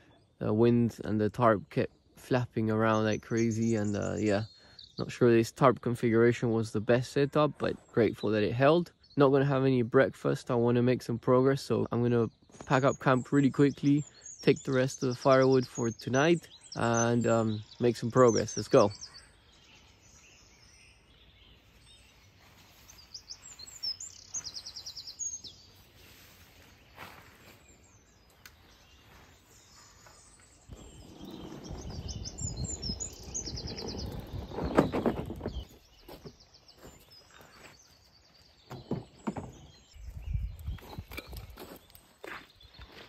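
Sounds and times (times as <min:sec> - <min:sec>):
small birds twittering: 0:00.0 - 0:43.0
camping gear clattering: 0:30.2 - 0:36.4, 0:40.8 - 0:42.0.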